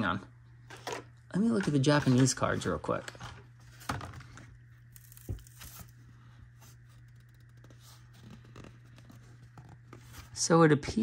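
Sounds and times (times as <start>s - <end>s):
cardboard and plastic packaging crinkling: 1.6s - 10.4s.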